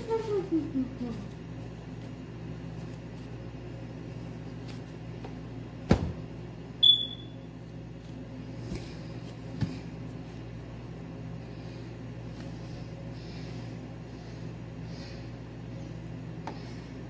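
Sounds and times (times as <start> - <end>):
steady low hum: 0.0 - 17.0
short high beep: 6.8 - 7.4.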